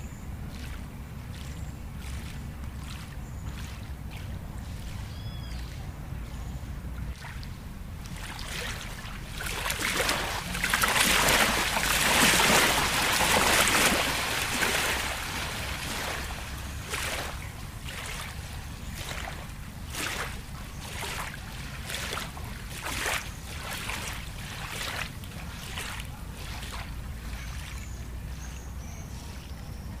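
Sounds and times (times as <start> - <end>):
rush of water: 0.0 - 28.5
low steady rumble: 0.0 - 30.0
water lapping and splashing: 0.0 - 30.0.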